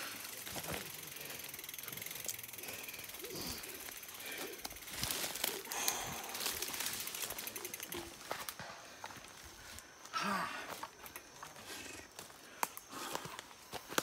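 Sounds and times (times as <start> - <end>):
bicycle freehub ratchet clicking: 0.0 - 8.4
footsteps on dirt trail: 0.2 - 1.4, 3.6 - 14.0.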